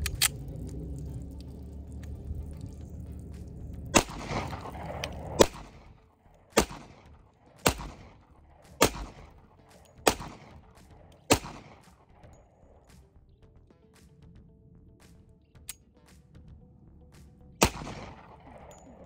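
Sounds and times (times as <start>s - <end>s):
pistol shots with echo: 3.9s - 12.5s, 17.6s - 19.0s.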